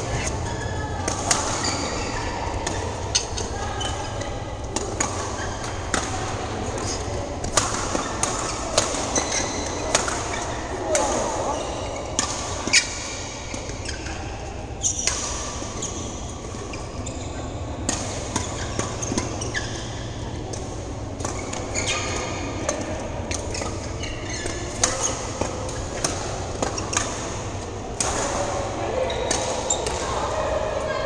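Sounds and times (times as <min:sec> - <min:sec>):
badminton racket hitting shuttlecock: 0:04.8 - 0:11.2, 0:17.8 - 0:28.6.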